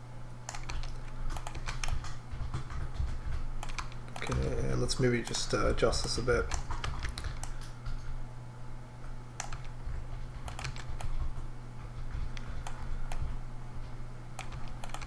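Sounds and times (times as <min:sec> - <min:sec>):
steady low hum: 0:00.0 - 0:15.0
computer keys clicking: 0:00.4 - 0:04.6, 0:06.4 - 0:08.1, 0:09.4 - 0:11.3, 0:12.2 - 0:13.3, 0:14.4 - 0:15.0.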